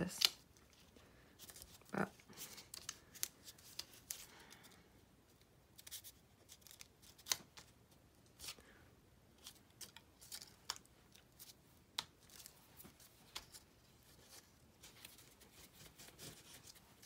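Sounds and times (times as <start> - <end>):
paper rustling: 9.4 - 17.0.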